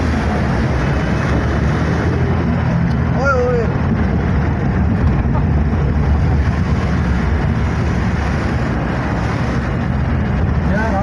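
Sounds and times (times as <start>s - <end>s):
vehicle driving through floodwater: 0.0s - 11.0s.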